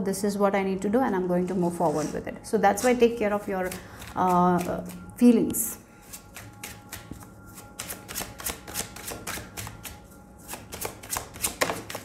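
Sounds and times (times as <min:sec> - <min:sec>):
cards being shuffled: 0:06.1 - 0:12.0.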